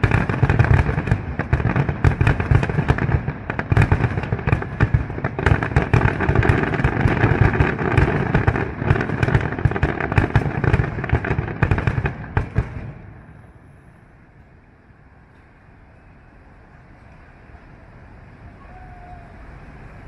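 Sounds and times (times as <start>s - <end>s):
fireworks bangs and crackles: 0.0s - 13.6s.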